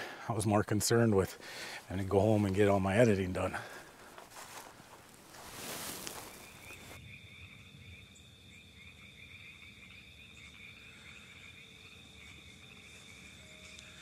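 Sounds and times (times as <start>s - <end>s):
rustling hiss: 1.2s - 7.0s
insect chorus trilling: 5.6s - 14.0s.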